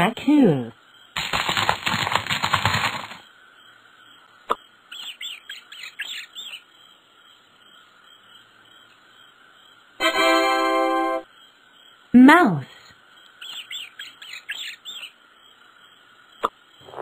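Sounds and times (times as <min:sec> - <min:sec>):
faint steady background noise: 0:00.0 - 0:17.0.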